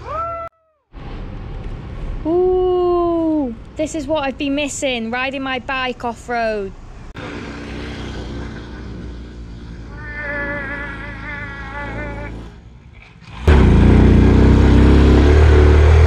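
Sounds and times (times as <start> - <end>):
motorcycle engine labouring uphill: 7.2 - 16.0.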